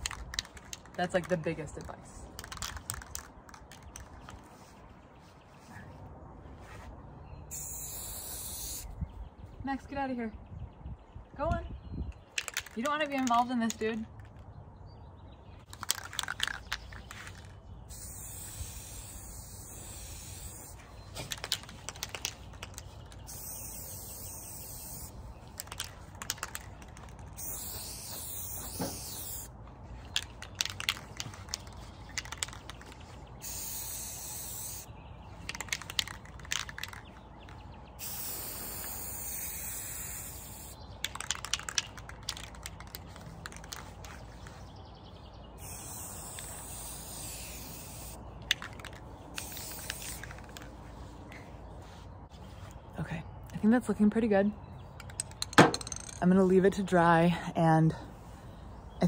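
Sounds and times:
spray can mixing ball rattling: 0.0 - 1.4, 2.3 - 4.3, 7.5 - 8.8, 15.7 - 37.2, 38.0 - 44.6, 45.6 - 50.7
spray paint can hissing: 7.5 - 8.9, 15.7 - 29.5, 30.1 - 37.1, 38.0 - 44.6, 45.6 - 50.6.

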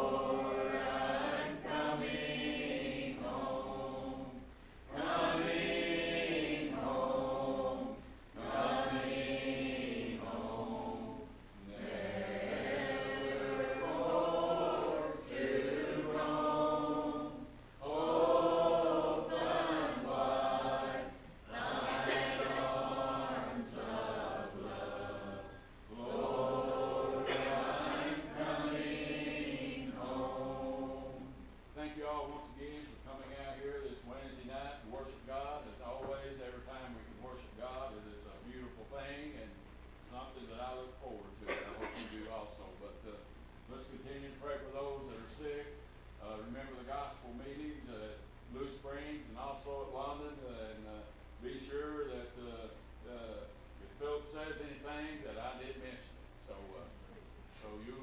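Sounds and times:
congregation singing a hymn: 0.0 - 39.4
breaths: 4.5 - 4.9.

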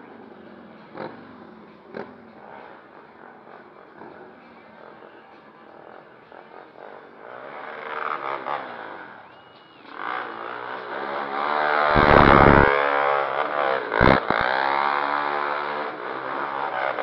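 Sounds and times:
quad engine revving: 10.2 - 17.0.

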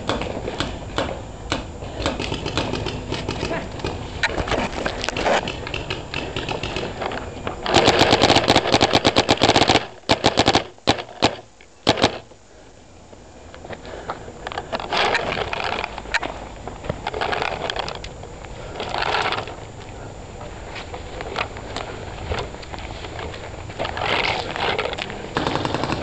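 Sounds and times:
paintball marker firing: 0.0 - 4.0, 5.1 - 7.0, 7.7 - 12.3, 25.4 - 26.0.

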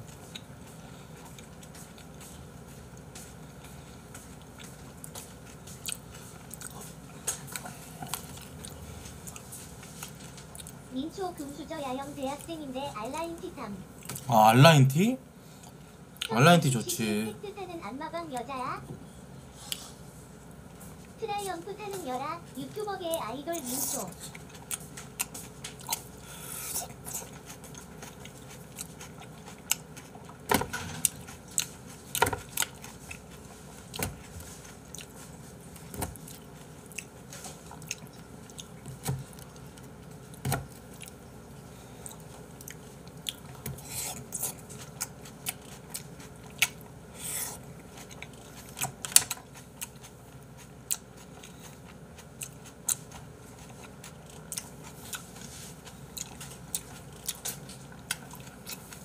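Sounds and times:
chewing and biting tomatoes: 0.0 - 10.8, 23.1 - 59.0.

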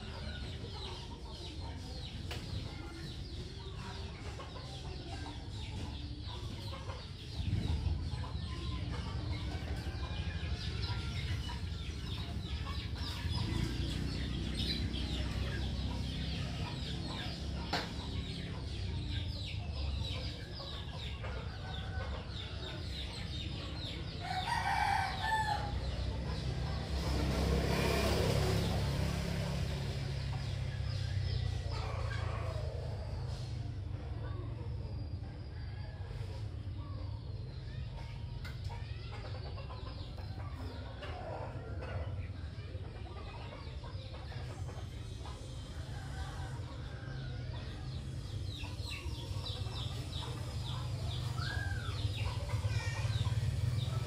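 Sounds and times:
chickens clucking: 0.0 - 54.0.

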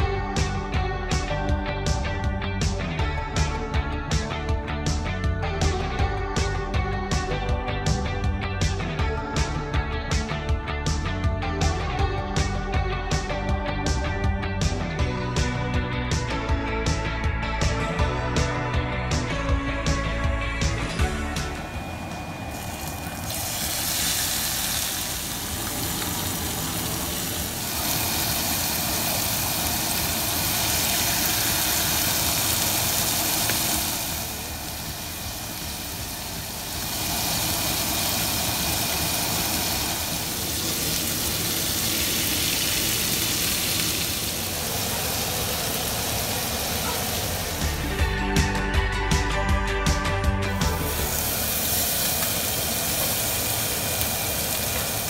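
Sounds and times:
chicken sizzling on grill pan: 22.4 - 48.1, 50.6 - 55.0.

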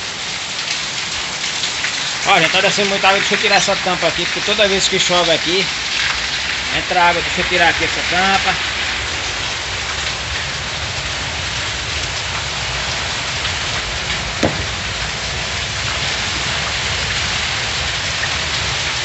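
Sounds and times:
heavy rain: 0.0 - 19.0
sharp knock: 14.4 - 14.9.

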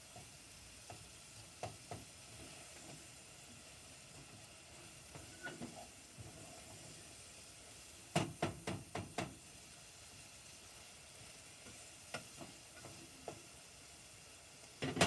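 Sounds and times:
food sizzling in a pot: 0.0 - 15.0
light stirring knocks: 1.6 - 3.0
utensils clacking on cookware: 5.1 - 5.9, 14.8 - 15.0.

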